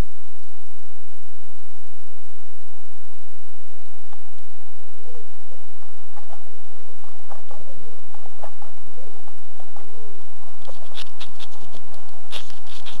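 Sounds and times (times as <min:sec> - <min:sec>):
crackling rustles and clicks: 0:04.0 - 0:13.0.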